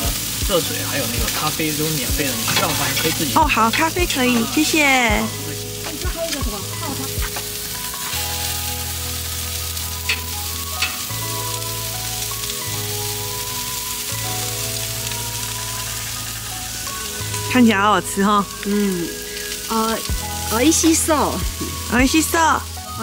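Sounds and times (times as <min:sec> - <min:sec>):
meat sizzling on a grill: 0:00.0 - 0:23.0
soft background music: 0:00.0 - 0:23.0
tongs clicking: 0:10.1 - 0:11.1.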